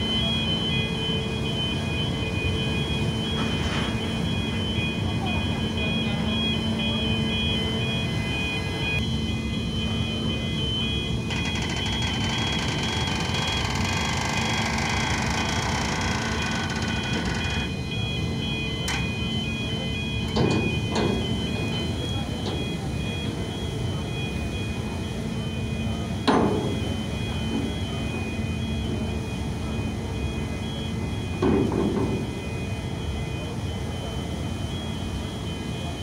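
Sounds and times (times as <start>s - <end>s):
constant hum: 0.0s - 36.0s
ferry engines rumbling: 0.0s - 36.0s.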